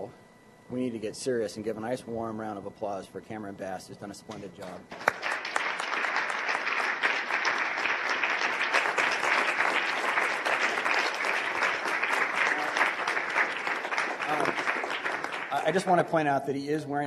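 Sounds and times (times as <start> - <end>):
audience applause: 4.9 - 16.0.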